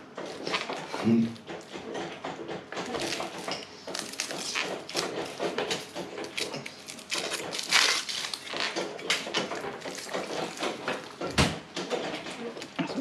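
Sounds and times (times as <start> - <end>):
person chewing flatbread: 2.8 - 11.2.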